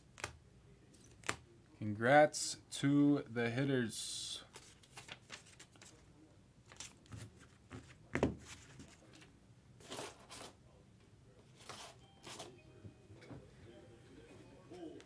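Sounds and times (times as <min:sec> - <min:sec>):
trading cards and wrappers rustling: 0:04.4 - 0:06.1, 0:06.7 - 0:10.6, 0:11.6 - 0:12.6.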